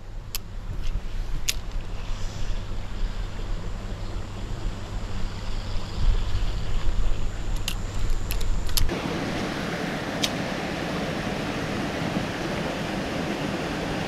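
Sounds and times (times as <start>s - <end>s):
wind buffeting microphone: 0.0s - 14.0s
stream water rushing: 8.9s - 14.0s.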